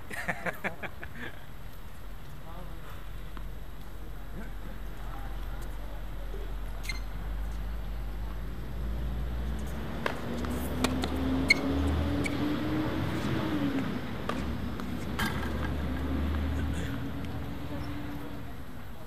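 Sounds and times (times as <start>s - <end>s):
tennis ball hits and bounces: 9.5s - 12.4s, 13.7s - 16.5s.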